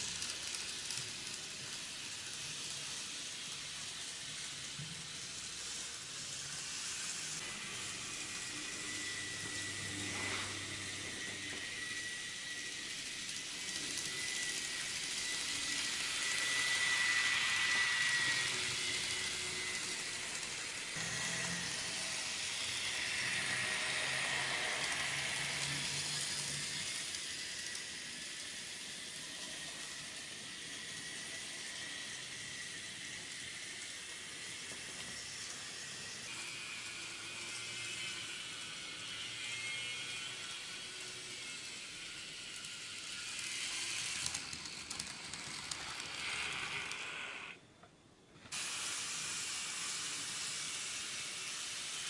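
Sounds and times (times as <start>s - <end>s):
model train rolling: 0.0s - 52.0s
high motor whine: 5.8s - 45.0s.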